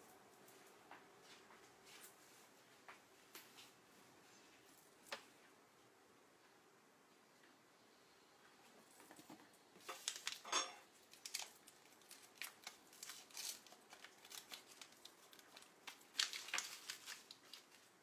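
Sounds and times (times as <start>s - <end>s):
wrappers crinkling and tearing: 9.8s - 18.0s.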